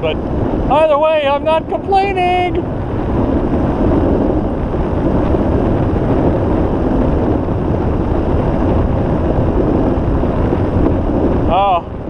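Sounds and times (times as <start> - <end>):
wind on microphone: 0.0 - 12.0
skateboard wheels rolling on pavement: 2.5 - 12.0.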